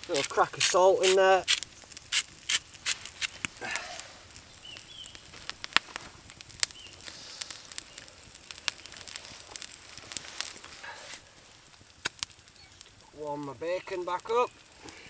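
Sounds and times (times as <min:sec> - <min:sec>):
campfire crackling and popping: 0:00.0 - 0:15.0
eggs and bacon frying: 0:00.0 - 0:15.0.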